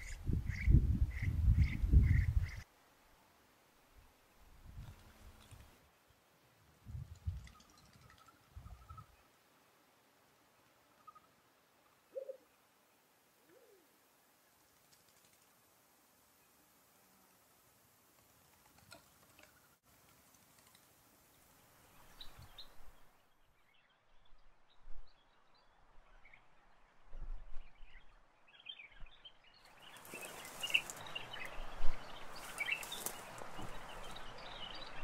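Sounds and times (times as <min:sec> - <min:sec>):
wild birds chirping: 0:00.0 - 0:02.7, 0:07.2 - 0:14.0, 0:20.5 - 0:27.1, 0:27.7 - 0:35.0
steady background hiss: 0:00.0 - 0:35.0.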